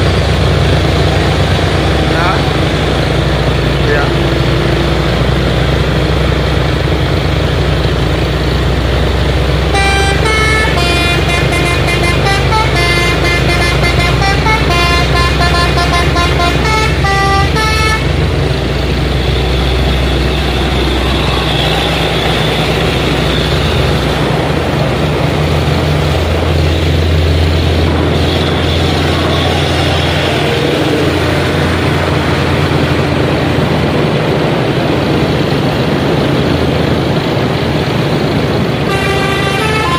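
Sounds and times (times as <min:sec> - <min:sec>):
diesel truck engines climbing: 0:00.0 - 0:39.9
musical truck horn tune: 0:09.6 - 0:24.4, 0:26.6 - 0:32.9, 0:38.8 - 0:39.9.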